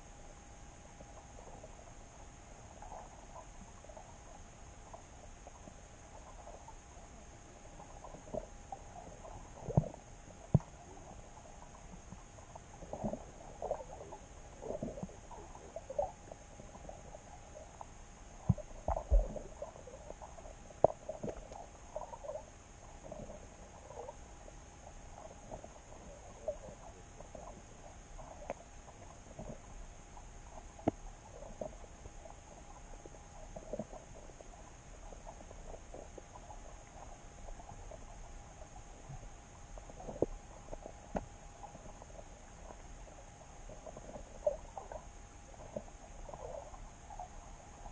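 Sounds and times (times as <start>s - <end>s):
faint steady hiss: 0.0s - 47.9s
muffled underwater knocks and clicks: 7.8s - 17.0s, 17.6s - 22.4s, 25.2s - 43.0s.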